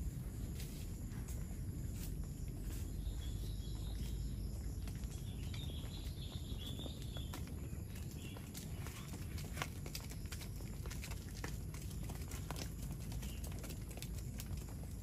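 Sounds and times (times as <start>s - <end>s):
low rumble: 0.0s - 13.0s
cattle hooves on hard road: 0.0s - 15.0s
faint high chirping: 2.0s - 9.4s.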